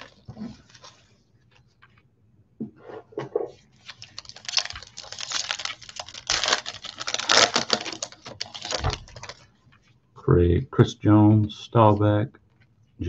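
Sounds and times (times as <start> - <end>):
foil card pack being opened: 0.0 - 1.0, 3.8 - 9.4.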